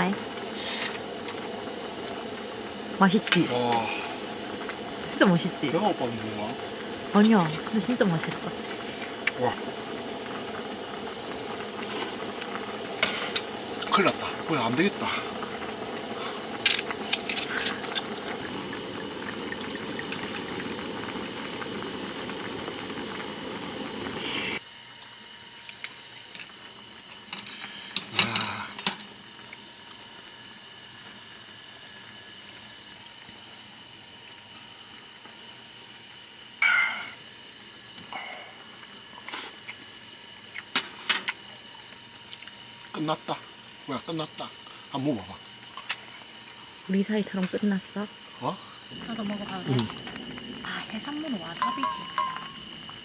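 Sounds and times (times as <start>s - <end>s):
crickets chirping: 0.0s - 53.0s
broad hiss: 0.2s - 24.6s, 36.6s - 41.4s.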